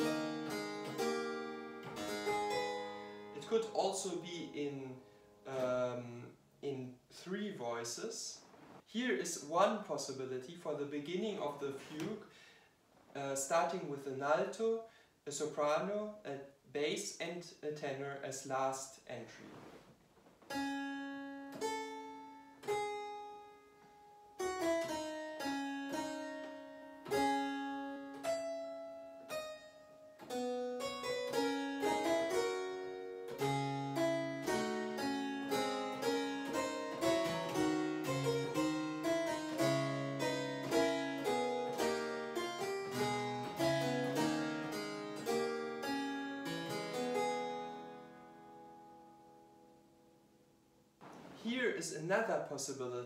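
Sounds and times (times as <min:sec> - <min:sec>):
harpsichord playing a fugue: 0:00.0 - 0:06.3, 0:20.5 - 0:49.8.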